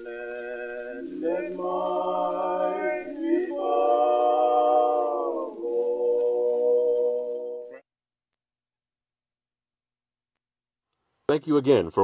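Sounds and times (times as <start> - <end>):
choir singing held chords: 0.0 - 7.8.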